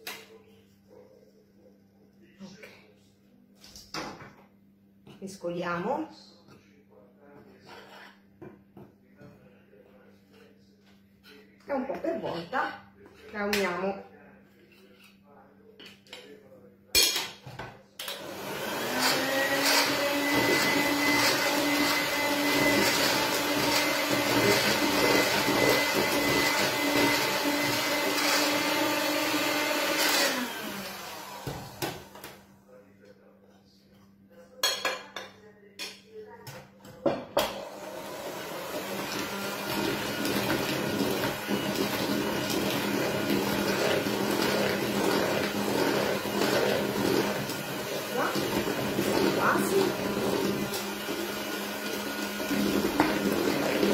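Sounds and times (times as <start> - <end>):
electric mixer whining: 18.0 - 32.3, 37.5 - 53.9.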